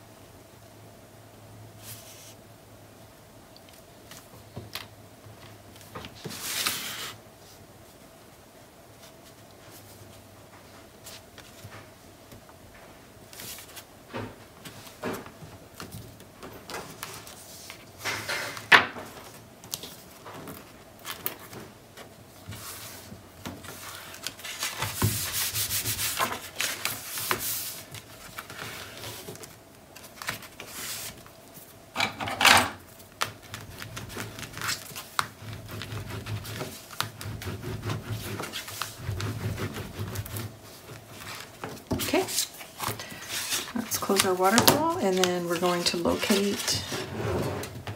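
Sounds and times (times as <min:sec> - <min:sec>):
paper rustling and rubbing: 0:01.8 - 0:02.4, 0:05.4 - 0:07.6, 0:13.3 - 0:13.9, 0:14.6 - 0:31.7, 0:32.9 - 0:47.9.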